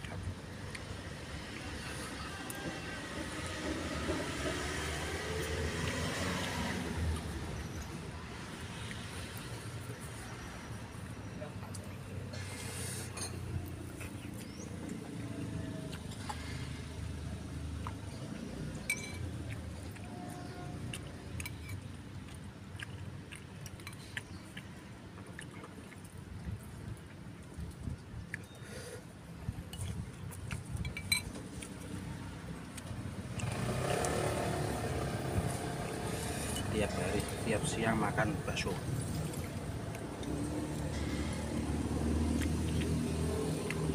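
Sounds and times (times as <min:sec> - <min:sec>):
road traffic rumble: 0:00.0 - 0:43.9
vehicle passing close by: 0:01.2 - 0:10.5, 0:33.2 - 0:43.9
spoon clinking against bowl: 0:18.9 - 0:19.3, 0:30.8 - 0:31.3.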